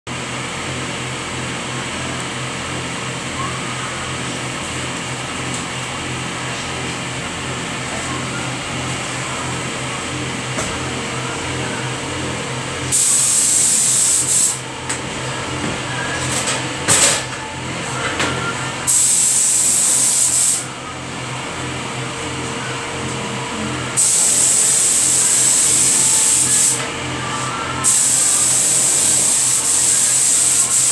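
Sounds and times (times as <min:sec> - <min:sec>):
ventilation fan humming: 0:00.1 - 0:30.9
spray gun hissing: 0:12.9 - 0:14.6, 0:18.9 - 0:20.6, 0:24.0 - 0:26.8, 0:27.8 - 0:30.9.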